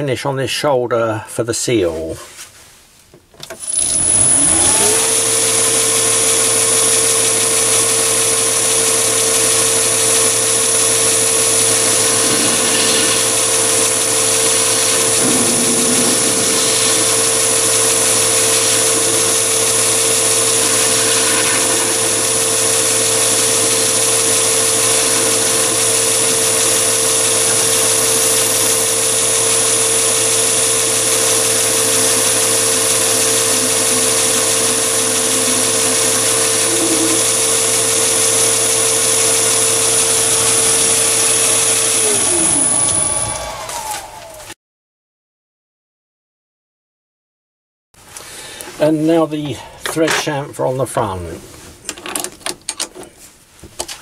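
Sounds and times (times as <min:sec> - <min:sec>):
metal lathe motor whine: 0:03.5 - 0:44.5.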